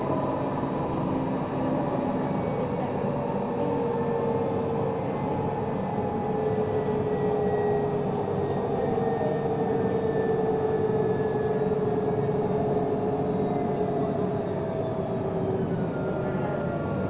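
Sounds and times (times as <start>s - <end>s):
tram motor whine: 0.0s - 17.0s.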